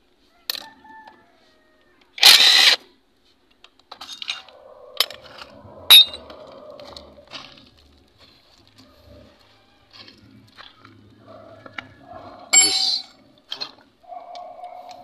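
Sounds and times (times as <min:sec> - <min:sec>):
sharp metallic clinks: 0:12.5 - 0:13.2.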